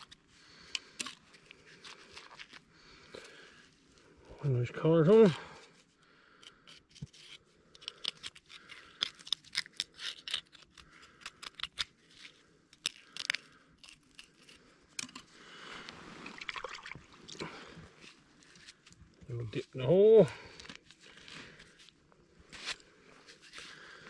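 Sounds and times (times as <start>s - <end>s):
knife crunching through fish: 6.7s - 12.0s, 12.8s - 15.2s
soft rustling: 15.5s - 17.2s.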